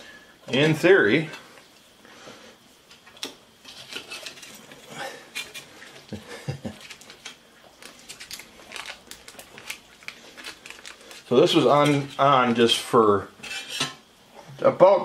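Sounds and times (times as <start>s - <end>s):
metal spatula scraping skillet: 3.6s - 4.7s, 13.4s - 14.0s.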